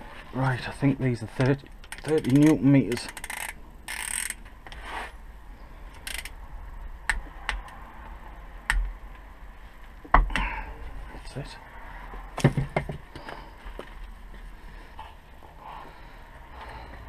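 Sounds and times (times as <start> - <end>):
wrench clicking: 1.8 - 4.4, 5.9 - 6.4.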